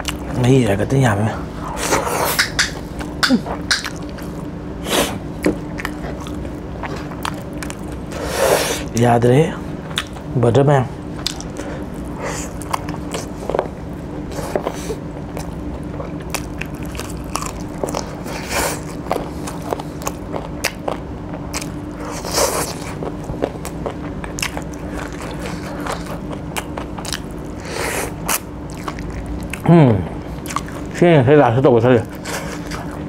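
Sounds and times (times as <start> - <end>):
person chewing: 0.0 - 0.3, 1.7 - 9.0, 9.9 - 10.3, 11.2 - 31.0, 32.0 - 33.0
faint low hum: 0.0 - 33.0
clicking mouth sounds: 2.3 - 4.1.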